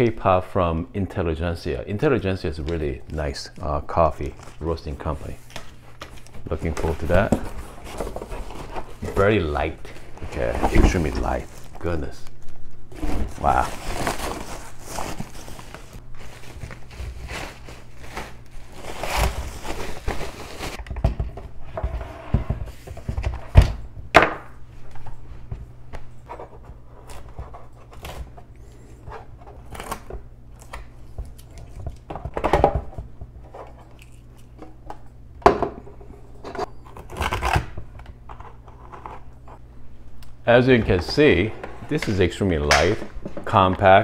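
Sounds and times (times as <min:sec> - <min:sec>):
plastic bag rustling: 0:04.2 - 0:20.8.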